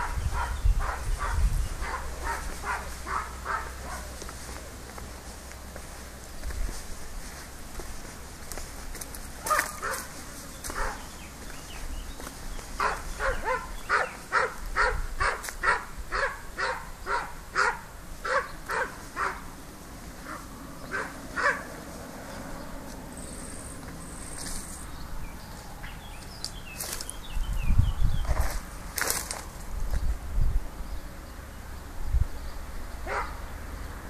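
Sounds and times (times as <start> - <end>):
dog barking: 0.0 - 4.2, 9.4 - 11.1, 12.8 - 19.4, 20.2 - 21.8, 33.0 - 33.4.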